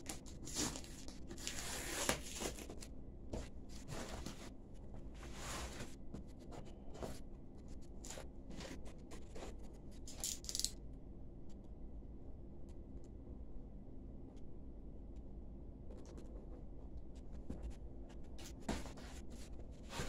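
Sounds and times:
cardboard and paper rustling: 0.1s - 7.2s, 18.4s - 20.0s.

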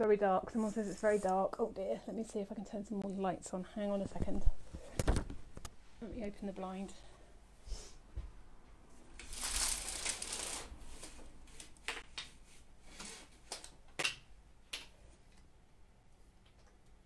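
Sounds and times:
window blind rattling: 9.2s - 10.7s.

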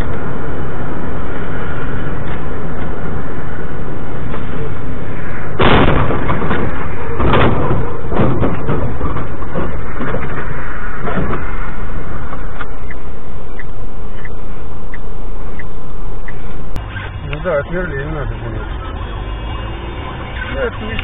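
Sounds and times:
vehicle noise: 0.0s - 21.0s
loud bangs: 5.5s - 11.8s.

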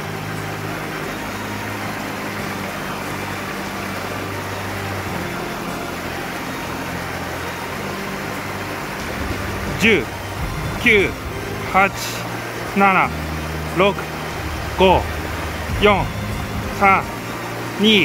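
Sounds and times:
low hum: 0.0s - 18.0s
mountain stream rushing: 0.0s - 18.0s.

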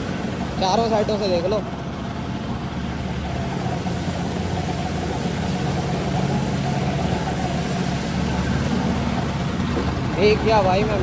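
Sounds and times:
scooter motor running: 0.0s - 11.0s
water spray splashing: 3.1s - 11.0s.

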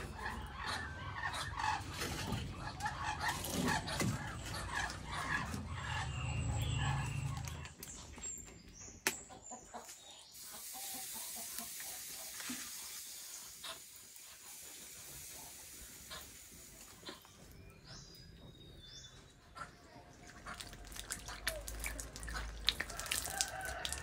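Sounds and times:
chickens clucking: 0.0s - 24.0s.

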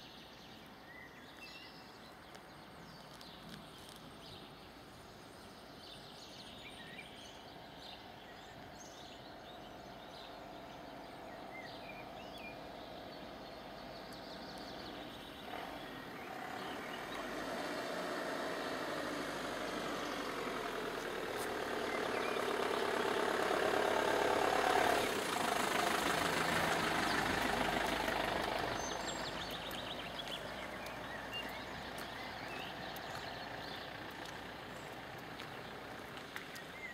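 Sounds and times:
vehicle passing by: 8.9s - 36.9s.

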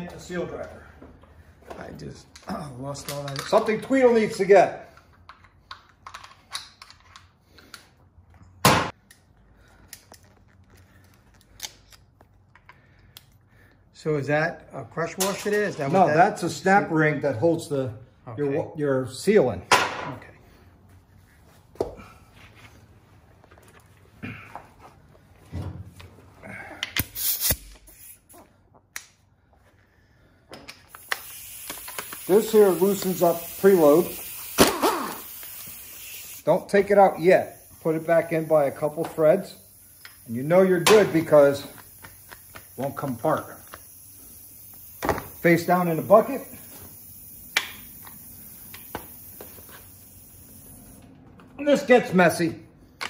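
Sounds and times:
tools clicking and clinking: 2.3s - 4.3s, 4.9s - 7.9s
hissing clattering burst: 30.9s - 51.0s.

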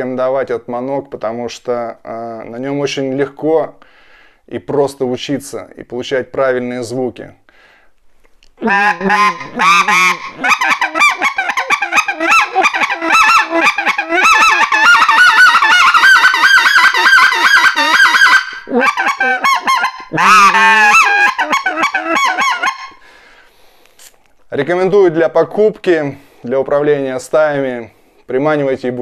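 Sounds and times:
goose call clucking notes: 8.6s - 23.0s.

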